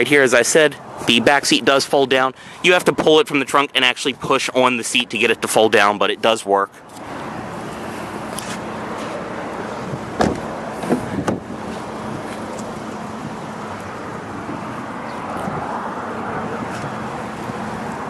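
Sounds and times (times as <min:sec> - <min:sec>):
car door handle and latch clicks: 0:10.2 - 0:11.4.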